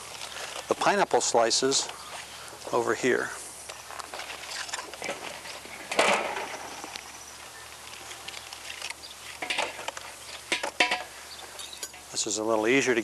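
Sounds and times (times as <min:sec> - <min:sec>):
aluminium foil rustling: 0:03.6 - 0:07.1, 0:07.7 - 0:12.1.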